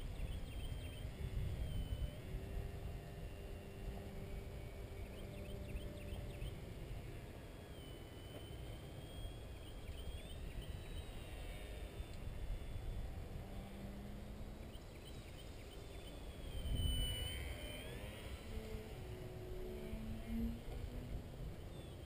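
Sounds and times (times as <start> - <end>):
distant model plane motor whine: 0.0 - 22.0
wind rumbling on microphone: 0.0 - 22.0.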